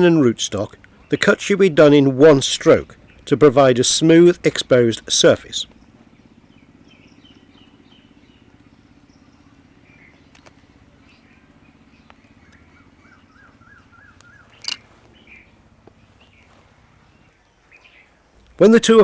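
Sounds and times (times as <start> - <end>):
small birds chirping: 0.0 - 19.0
steady low hum: 0.0 - 19.0
sharp click: 14.2 - 14.9.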